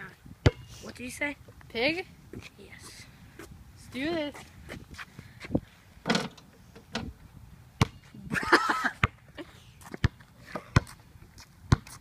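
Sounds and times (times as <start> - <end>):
basketball bouncing on concrete: 7.8 - 8.0, 9.9 - 11.0, 11.7 - 12.0.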